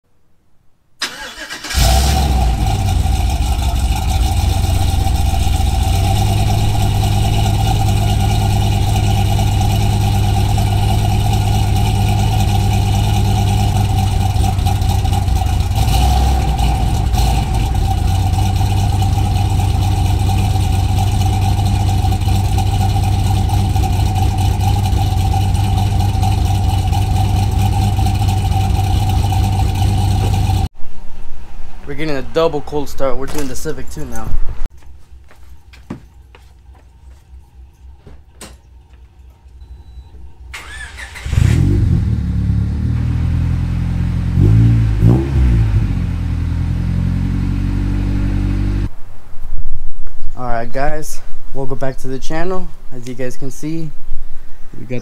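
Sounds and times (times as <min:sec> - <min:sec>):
truck engine starting and idling: 0:01.0 - 0:30.7, 0:37.5 - 0:48.9
turbo whine: 0:01.8 - 0:30.7, 0:39.6 - 0:48.9.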